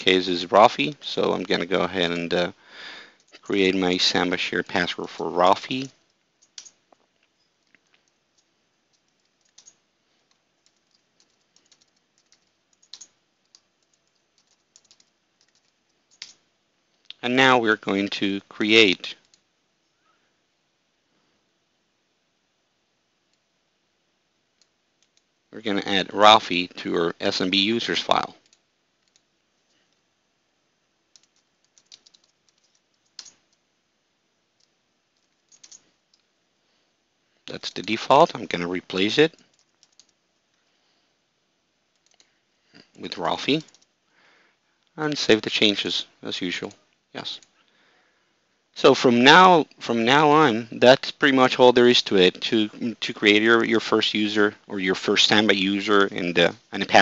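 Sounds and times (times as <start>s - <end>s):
keystrokes on computer keyboard: 5.8s - 6.8s, 7.4s - 16.4s, 24.6s - 25.3s, 28.4s - 30.0s, 31.1s - 33.6s, 34.6s - 36.3s, 39.3s - 40.5s, 41.9s - 42.3s, 42.9s - 43.9s.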